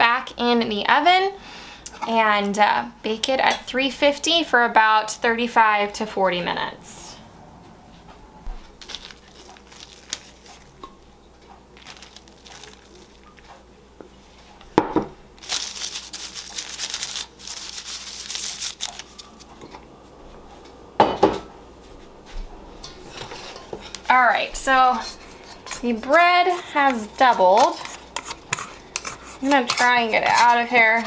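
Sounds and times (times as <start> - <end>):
hand rubbing flour on paper: 15.4 - 19.5.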